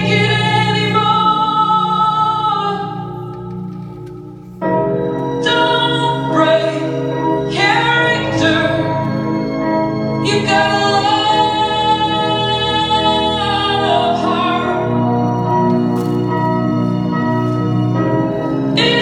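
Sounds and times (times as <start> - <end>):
woman singing a song: 0.0 - 3.4, 5.4 - 9.1, 10.2 - 15.0.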